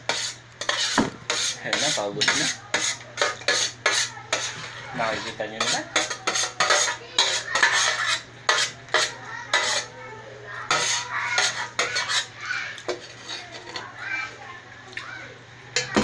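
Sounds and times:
metal utensil scraping tray and plate: 0:00.0 - 0:09.9, 0:10.7 - 0:14.0.

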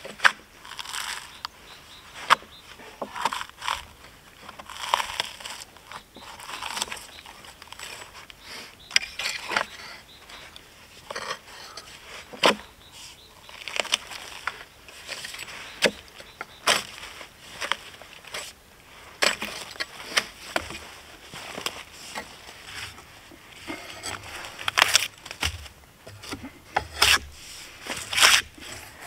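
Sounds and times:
tool scraping bark off log: 0:23.6 - 0:29.0
sharp knocks and cracks: 0:24.1 - 0:27.3.

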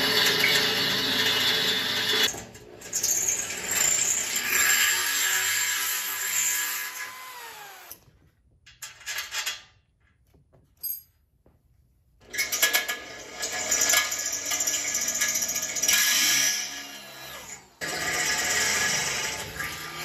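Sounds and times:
electric drill boring into metal: 0:00.0 - 0:02.3, 0:02.9 - 0:08.0, 0:12.3 - 0:20.0.

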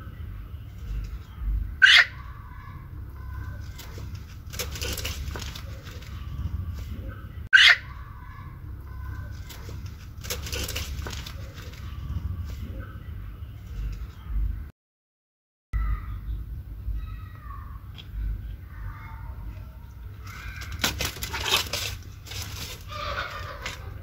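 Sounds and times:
hen squawking: 0:01.7 - 0:05.9, 0:07.6 - 0:11.7, 0:20.2 - 0:24.0
wing flapping and feather rustling: 0:03.4 - 0:06.9, 0:09.3 - 0:12.7, 0:20.1 - 0:24.0.

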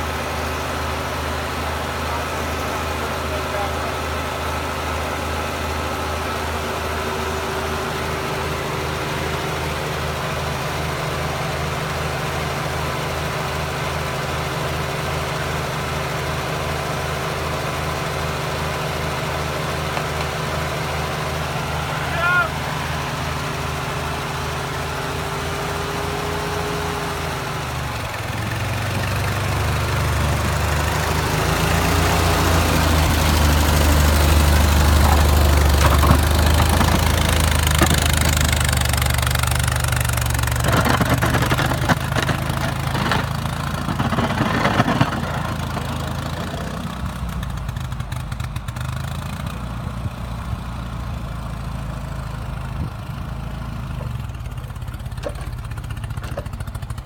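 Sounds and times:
tractor engine running: 0:00.0 - 0:57.0
clattering: 0:40.5 - 0:46.1.

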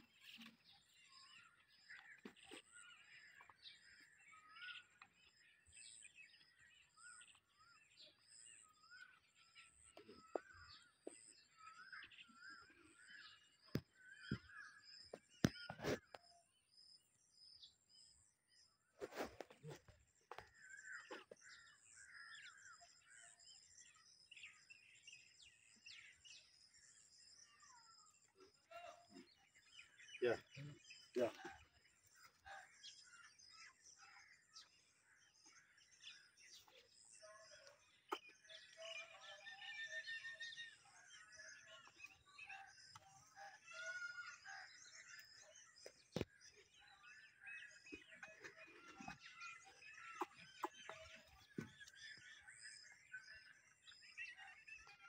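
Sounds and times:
small birds chirping and trilling: 0:00.0 - 0:55.0.

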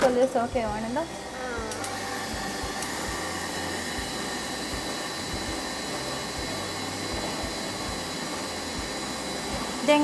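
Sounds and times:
stand mixer whirring: 0:00.0 - 0:10.0.

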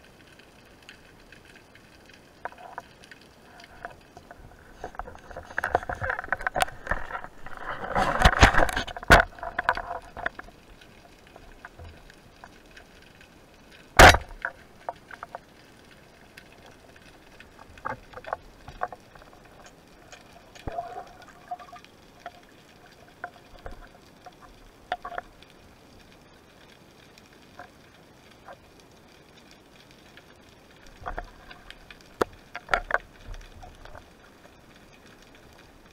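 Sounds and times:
rush of water underwater: 0:00.0 - 0:35.9
small clicks and knocks: 0:00.2 - 0:28.7, 0:29.4 - 0:35.9
sharp loud crack: 0:14.0 - 0:14.4.

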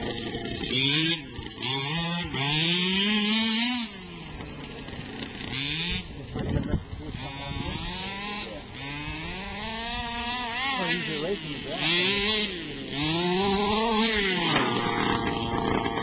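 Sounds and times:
small two-stroke engine revving: 0:00.0 - 0:16.0.

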